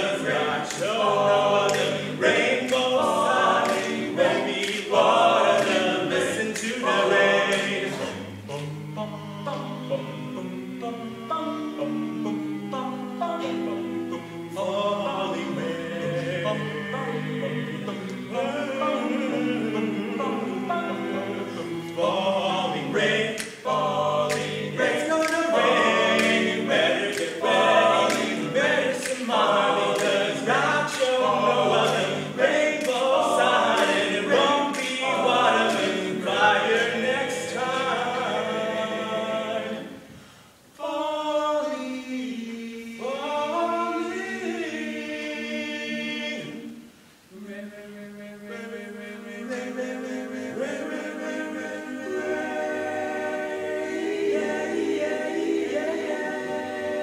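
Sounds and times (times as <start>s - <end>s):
a cappella group singing: 0.0s - 57.0s
percussive clicks: 23.4s - 23.6s.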